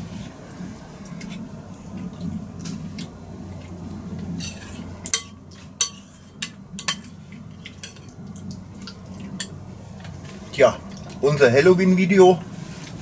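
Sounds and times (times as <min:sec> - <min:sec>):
spoons scraping soup bowls: 0:04.4 - 0:08.0.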